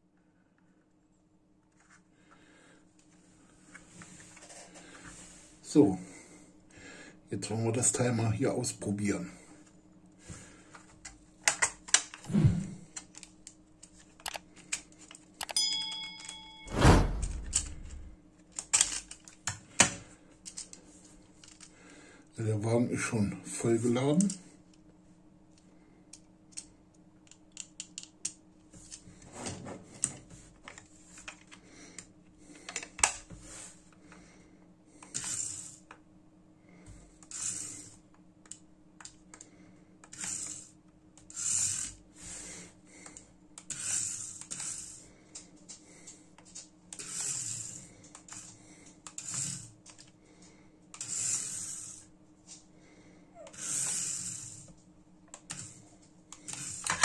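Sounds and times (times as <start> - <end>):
toy car motor whirring: 35.1 - 35.8, 37.3 - 37.9, 40.1 - 40.7, 41.3 - 42.0, 43.7 - 45.0, 47.0 - 48.5, 49.1 - 49.7, 51.0 - 52.1, 53.4 - 54.7, 56.5 - 57.0.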